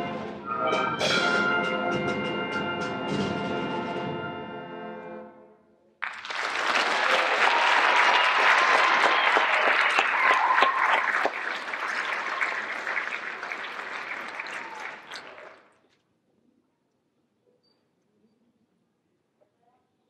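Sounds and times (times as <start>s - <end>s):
audience clapping: 6.0s - 15.8s.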